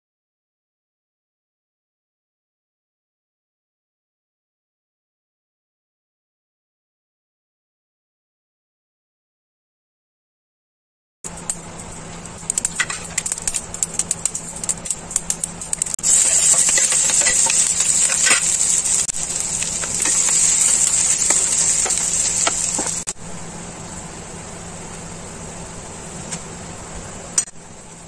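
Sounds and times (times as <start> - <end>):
mustard seeds popping in oil: 11.3 - 23.1
onion sizzling in oil: 11.3 - 28.0.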